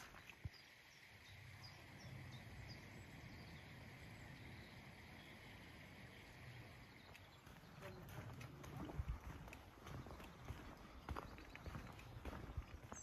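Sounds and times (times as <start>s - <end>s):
faint high bird chirps: 0.0s - 13.0s.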